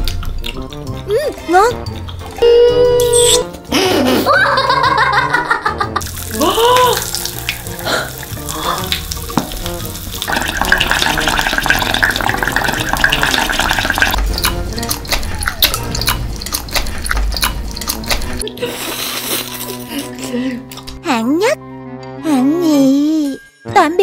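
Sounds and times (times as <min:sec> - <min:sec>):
wet clicks and slurps: 0:00.0 - 0:02.5, 0:10.2 - 0:19.8
background music: 0:00.0 - 0:24.0.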